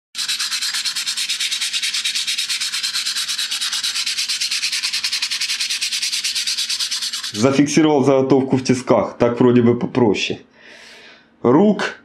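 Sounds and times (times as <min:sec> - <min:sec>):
sandpaper scratching on steel: 0:00.2 - 0:07.6.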